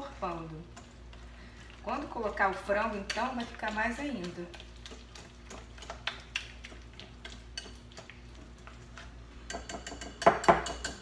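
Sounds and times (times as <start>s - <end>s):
whisk clicking against glass bowl: 9.5s - 11.0s.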